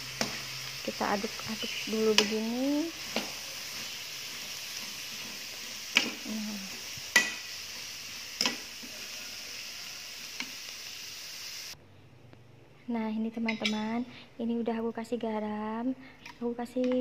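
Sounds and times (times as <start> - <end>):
slices sizzling in oil: 0.0 - 11.8.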